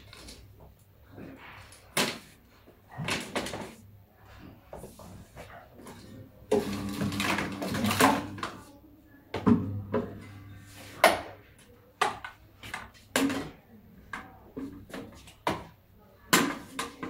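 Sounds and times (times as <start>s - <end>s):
objects knocking and clattering: 5.9s - 8.6s.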